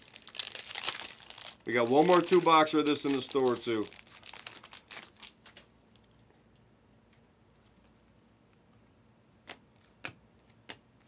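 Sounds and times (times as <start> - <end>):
foil wrapper crinkling: 0.0 - 5.7.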